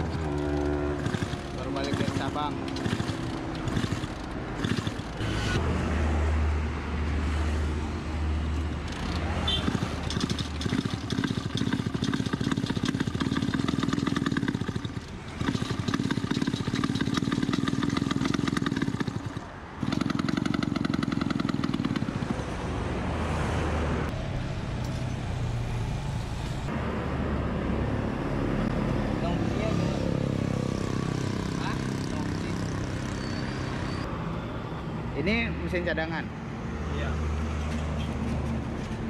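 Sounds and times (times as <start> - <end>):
scooter engine popping: 0.0 - 5.2, 8.9 - 22.3.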